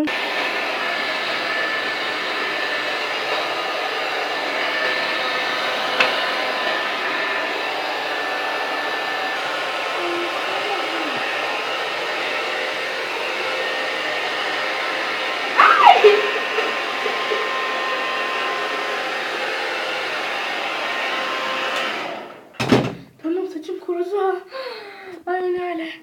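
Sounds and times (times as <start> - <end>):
hair dryer blowing: 0.0 - 22.6
high squeal falling in pitch: 15.6 - 18.1.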